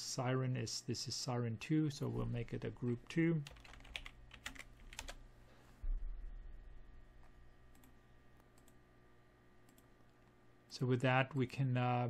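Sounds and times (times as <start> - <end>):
faint steady hum: 0.0 - 12.0
computer keyboard typing: 3.4 - 5.2, 7.7 - 8.8.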